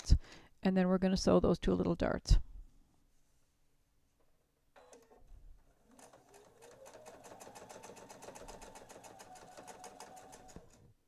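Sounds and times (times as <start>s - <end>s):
sewing machine stitching: 4.8s - 10.9s.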